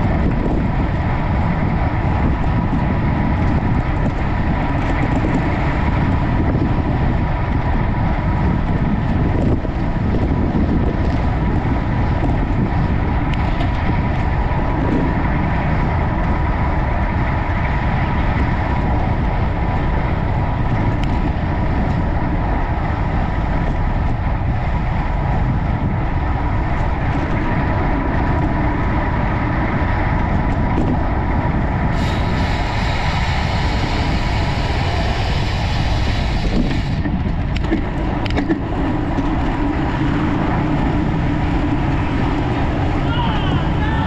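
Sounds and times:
wind rushing over microphone: 0:00.0 - 0:44.0
high hissing noise: 0:32.0 - 0:37.0.

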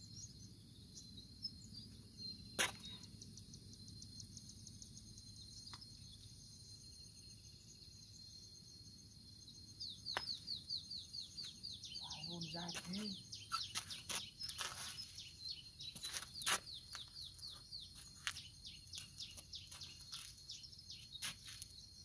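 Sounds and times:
insects chirping: 0:00.0 - 0:22.0
birds chirping: 0:09.8 - 0:21.4.

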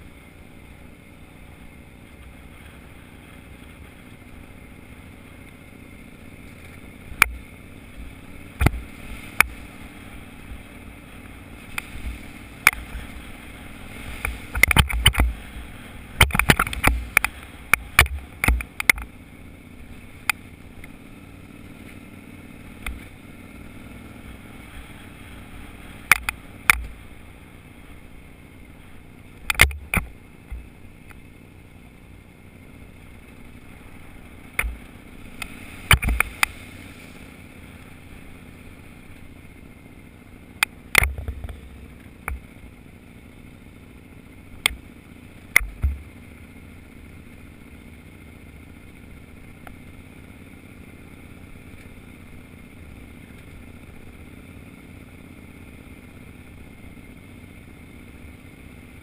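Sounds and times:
off-road vehicle engine: 0:00.0 - 0:59.0
knocks and rattles over bumps: 0:14.2 - 0:15.5, 0:16.2 - 0:19.1, 0:45.5 - 0:46.2.

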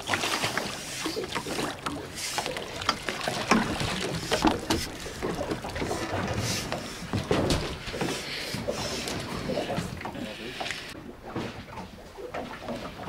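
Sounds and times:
net pole knocking against boat: 0:02.8 - 0:08.2.

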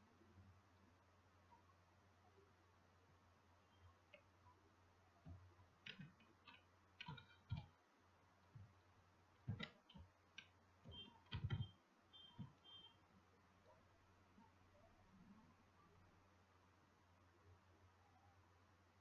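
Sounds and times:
keyboard and mouse clicks: 0:05.3 - 0:07.8, 0:09.4 - 0:12.8.

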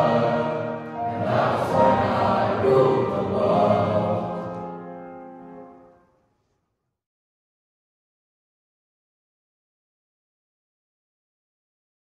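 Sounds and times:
boys choir singing: 0:00.0 - 0:04.6.

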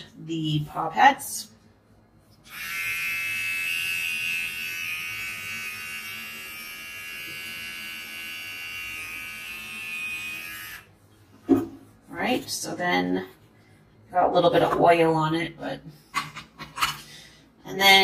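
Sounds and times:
pet trimmer buzzing: 0:02.5 - 0:10.9.

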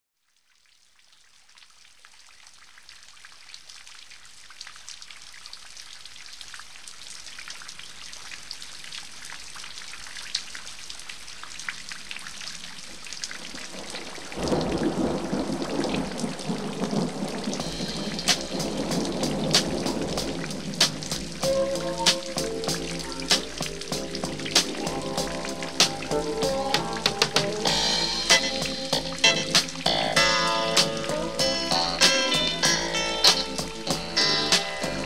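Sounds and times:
rain drop ticks: 0:00.3 - 0:35.0
heavy rain: 0:00.9 - 0:35.0
deep thunder rumble: 0:13.4 - 0:30.2.

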